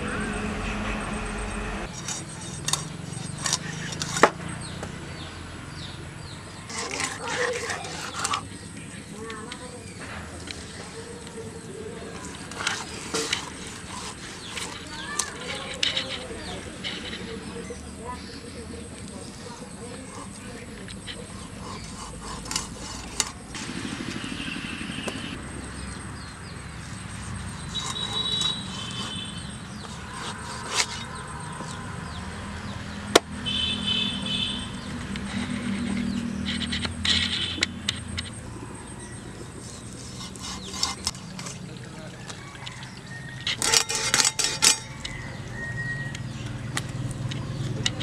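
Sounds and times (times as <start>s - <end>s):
knife chopping fish on metal tray: 21.2s - 23.5s, 27.7s - 31.8s, 39.7s - 41.7s.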